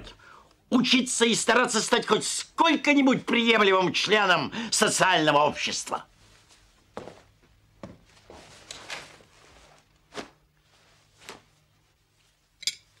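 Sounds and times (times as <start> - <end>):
cutlery and china clinking: 12.6 - 13.0.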